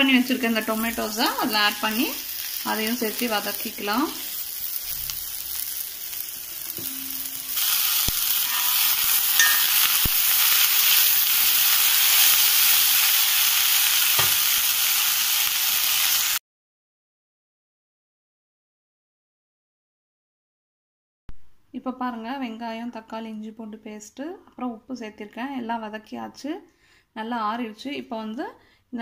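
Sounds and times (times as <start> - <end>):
vegetables sizzling in butter: 0.0 - 16.4.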